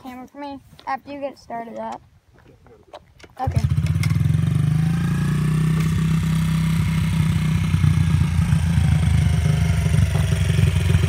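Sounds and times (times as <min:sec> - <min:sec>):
dirt bike engine idling: 0:03.4 - 0:11.0.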